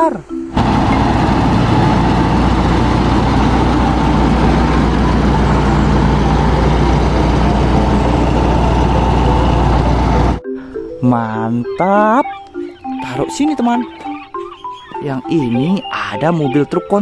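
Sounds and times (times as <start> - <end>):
diesel engine idling: 0.6 - 10.4
thin steady whine: 0.6 - 10.4.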